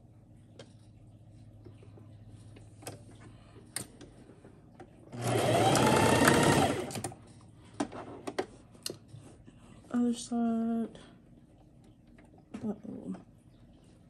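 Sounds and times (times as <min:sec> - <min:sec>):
sewing machine stitching: 0:05.2 - 0:07.2.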